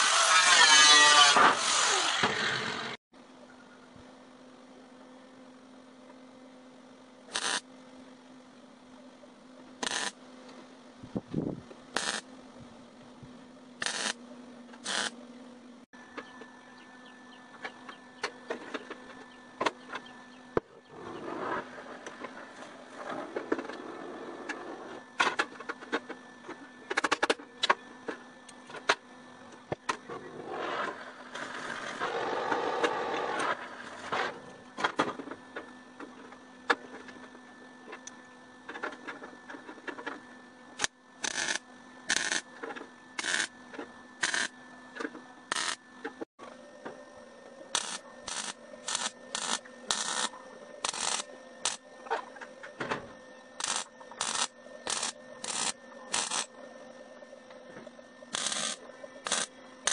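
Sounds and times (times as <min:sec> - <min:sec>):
short welding bursts: 0:07.3 - 0:07.6, 0:09.8 - 0:10.2, 0:12.0 - 0:12.2, 0:13.8 - 0:14.2, 0:14.8 - 0:15.2, 0:47.8 - 0:51.8, 0:53.6 - 0:56.5, 0:58.3 - 0:59.9
cutting torch hissing: 0:47.8 - 0:51.8, 0:58.3 - 0:59.9.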